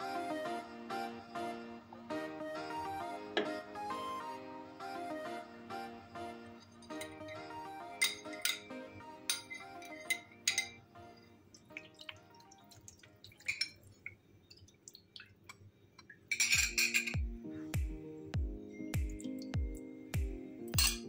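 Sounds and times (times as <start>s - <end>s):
background music: 0.0s - 13.7s, 16.4s - 21.0s
metal spoon clinking glass bowl: 6.8s - 7.4s, 8.0s - 8.7s, 9.3s - 10.8s, 13.4s - 13.8s, 16.3s - 17.2s, 20.8s - 21.0s.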